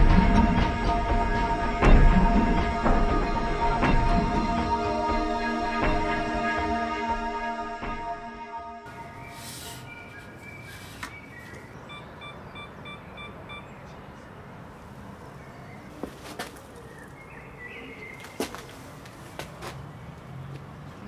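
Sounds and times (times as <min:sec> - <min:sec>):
faint outdoor background noise: 0:08.9 - 0:21.0
digital camera beeping: 0:11.9 - 0:13.7.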